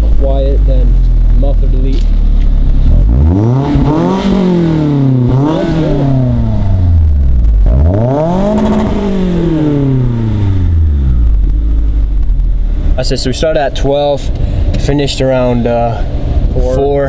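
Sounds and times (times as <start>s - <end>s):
car engine revving: 0.0s - 16.5s.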